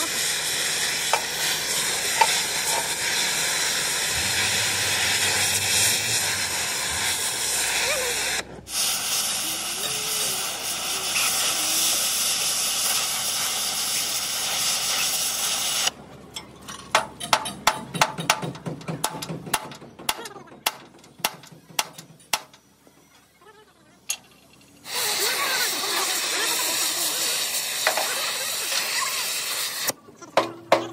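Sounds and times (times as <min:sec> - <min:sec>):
torch flame hissing: 0:00.0 - 0:15.9, 0:24.8 - 0:30.0
sharp knocks on metal: 0:16.9 - 0:22.6.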